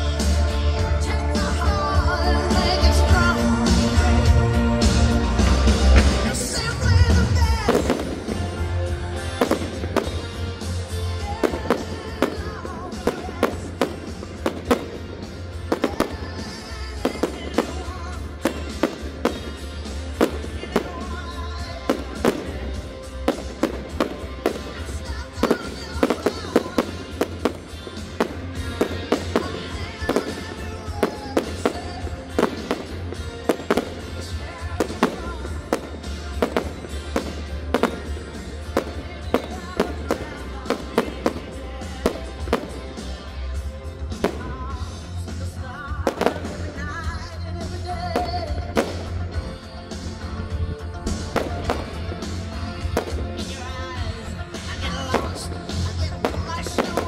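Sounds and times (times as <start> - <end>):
fireworks bangs and cracks: 0.0 - 57.0
music with low beat: 25.4 - 57.0.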